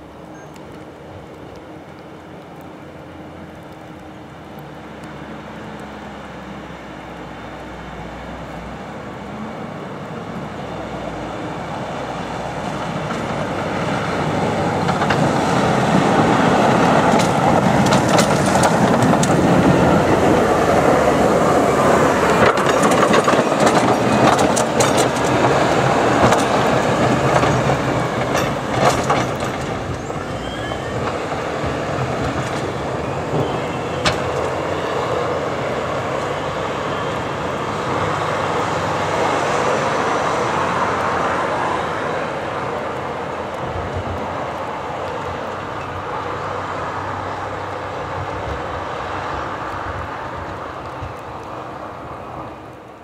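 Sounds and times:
diesel engine passing by: 0:00.0 - 0:53.0
steel blade scraping icy road: 0:11.2 - 0:43.8.

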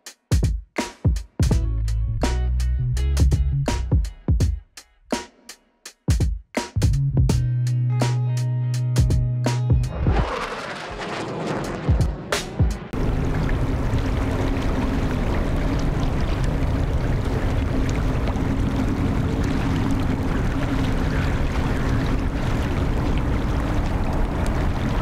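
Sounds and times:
jet engines roaring: 0:09.9 - 0:25.0
wind rumbling on microphone: 0:09.9 - 0:25.0
constant low hum: 0:12.0 - 0:25.0.

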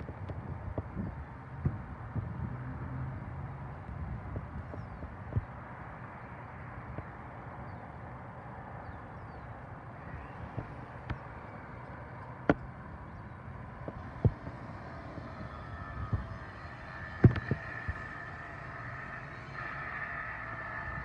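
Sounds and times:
faint high hum: 0:04.0 - 0:21.0
low rumble: 0:10.0 - 0:21.0.

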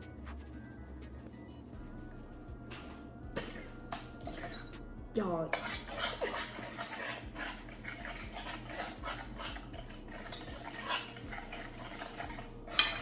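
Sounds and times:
muffled coughs: 0:03.3 - 0:03.7
utensil scraping a frying pan: 0:05.4 - 0:13.0.

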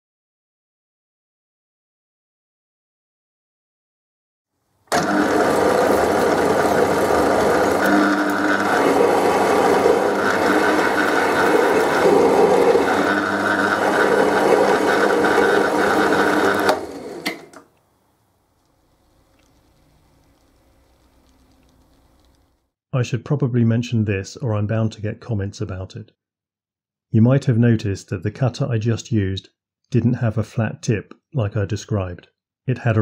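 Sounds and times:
metal lathe running: 0:04.9 - 0:17.6.

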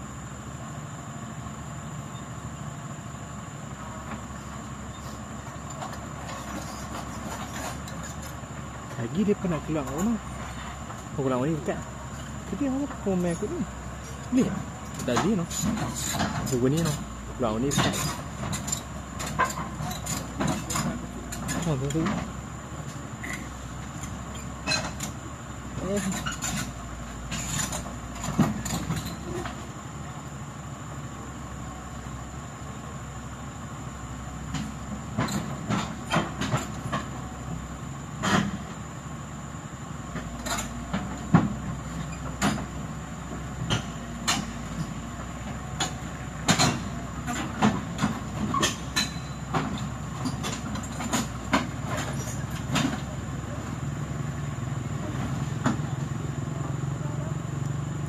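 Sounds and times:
heavy diesel machinery running: 0:00.0 - 0:58.0
sharp metallic clanks: 0:45.8 - 0:53.0.

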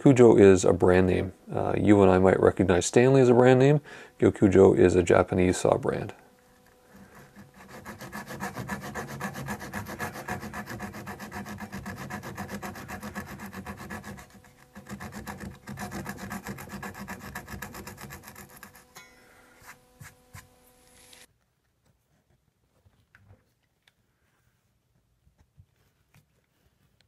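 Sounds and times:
handsaw cutting wood: 0:06.8 - 0:19.0.

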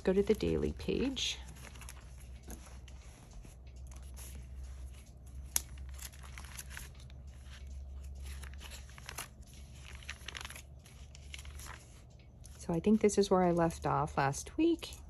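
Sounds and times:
paper pages turning: 0:00.1 - 0:12.1.

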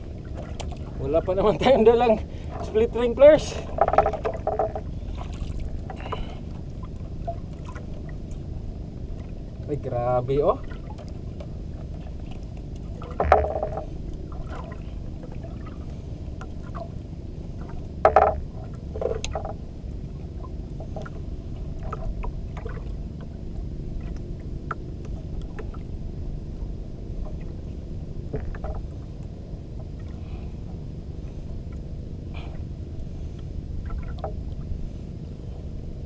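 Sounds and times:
steady low rumble: 0:00.0 - 0:36.0
knocks on wooden boat: 0:03.8 - 0:04.9, 0:13.2 - 0:13.9, 0:18.0 - 0:18.4.

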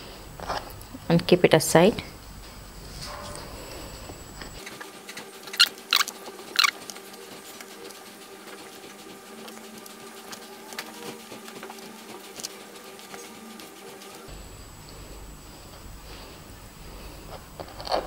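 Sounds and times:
faint steady hum: 0:00.0 - 0:18.0
hands pattering on bread rolls: 0:04.5 - 0:14.3.

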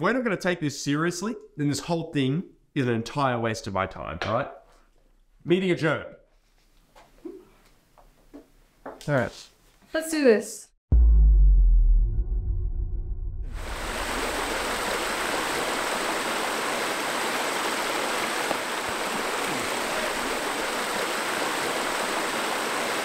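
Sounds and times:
deep low boom: 0:10.9 - 0:14.4
creek rushing over rocks: 0:13.6 - 0:23.0.

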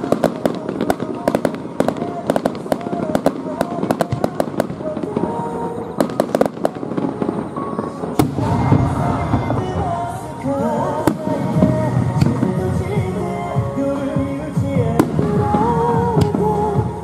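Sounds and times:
fireworks bursting: 0:00.0 - 0:17.0
music with a melody: 0:00.0 - 0:17.0.

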